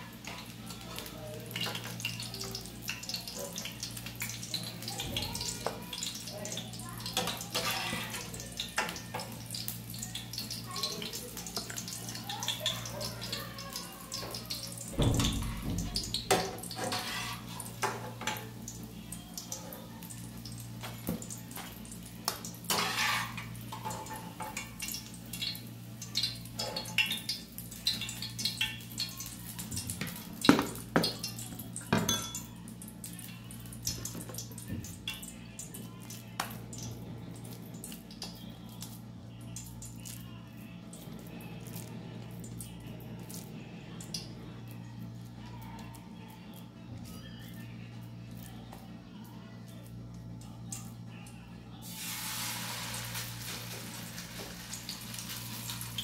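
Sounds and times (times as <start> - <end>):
frying oil sizzling: 0.0 - 44.8, 51.8 - 56.0
metal spatula scraping a pan: 7.2 - 8.4, 16.3 - 18.1, 22.7 - 24.2.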